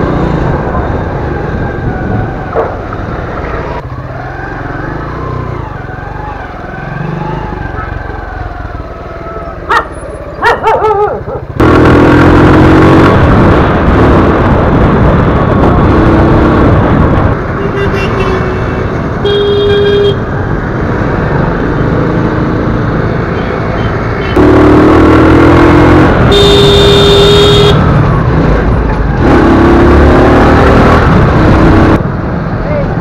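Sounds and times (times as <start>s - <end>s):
vehicle engines: 0.0s - 33.0s
wind and road noise: 0.0s - 33.0s
vehicle horns honking: 17.6s - 20.3s, 26.2s - 27.9s.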